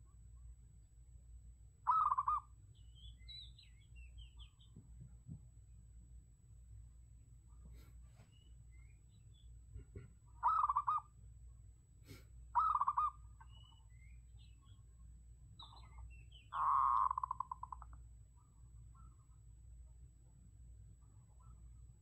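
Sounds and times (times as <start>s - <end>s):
dove cooing: 1.9s - 2.5s, 9.8s - 11.1s, 12.5s - 13.7s, 15.7s - 17.9s.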